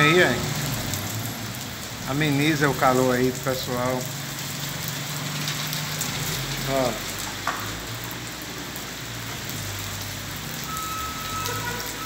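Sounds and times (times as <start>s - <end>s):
rain on cobbles and tiles: 0.0s - 12.0s
reversing alarm beeping: 10.7s - 12.0s.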